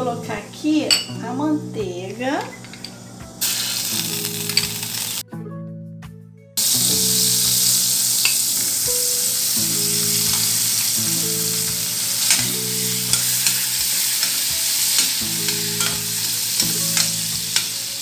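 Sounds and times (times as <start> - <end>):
bacon sizzling in a pan: 2.9 - 5.2, 6.6 - 18.0
utensil clicking against pan: 12.2 - 18.0.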